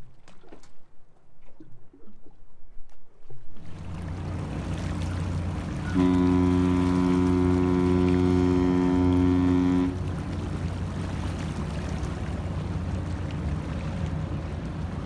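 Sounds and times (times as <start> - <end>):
low steady rumble: 3.5 - 15.0
deep ship horn: 3.7 - 15.0.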